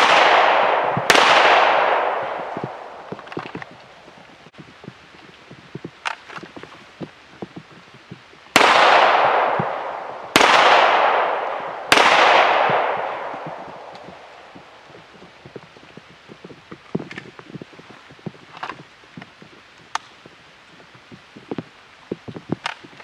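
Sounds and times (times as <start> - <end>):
pistol shots with long echo: 0.0 - 3.1, 8.5 - 14.5.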